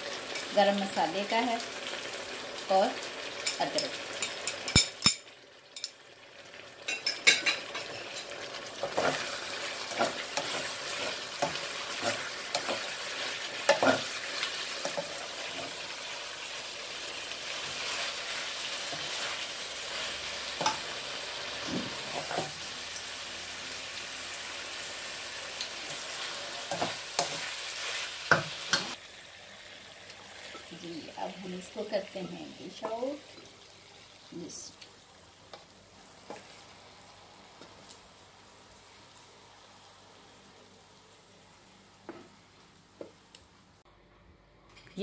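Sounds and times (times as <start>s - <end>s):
curry sizzling in a frying pan: 0.0s - 43.8s
wooden spoon scraping a pan: 7.6s - 15.9s.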